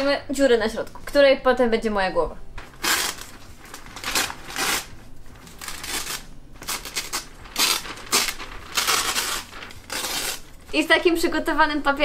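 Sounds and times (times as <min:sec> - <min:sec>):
wrapping paper crinkling and tearing: 0:02.6 - 0:11.2.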